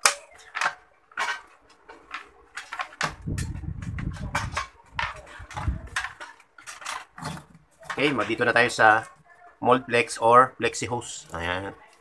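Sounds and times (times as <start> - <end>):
clicks and knocks on metal: 0.0 - 8.6
wires rubbing and rustling: 0.0 - 12.0.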